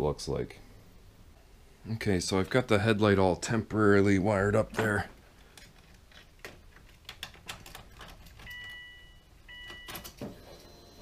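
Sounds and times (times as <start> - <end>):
handling clicks and rattles: 4.8 - 8.8
electronic beep tones: 8.5 - 11.0.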